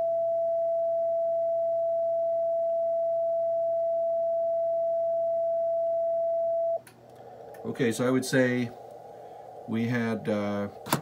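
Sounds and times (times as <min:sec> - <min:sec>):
constant mid-pitched tone: 0:00.0 - 0:11.0
faint receiver hiss: 0:06.8 - 0:11.0.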